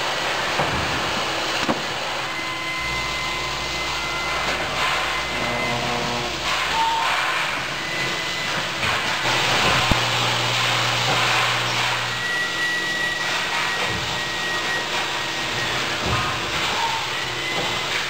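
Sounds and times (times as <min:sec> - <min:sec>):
faint high whistle: 0:02.2 - 0:07.2, 0:11.8 - 0:18.0
low hum: 0:02.4 - 0:06.8
robotic machine noise: 0:04.3 - 0:07.7.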